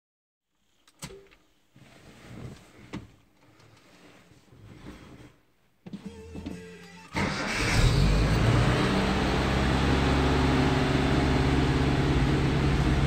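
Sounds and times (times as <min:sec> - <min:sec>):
soft shuffling: 0:01.5 - 0:06.8.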